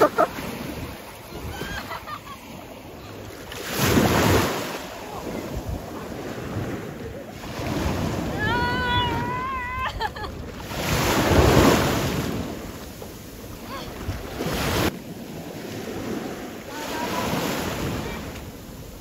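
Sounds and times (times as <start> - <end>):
woman laughing: 0.0 - 0.4, 1.3 - 2.5, 9.1 - 10.4
shallow water washing: 0.0 - 19.0.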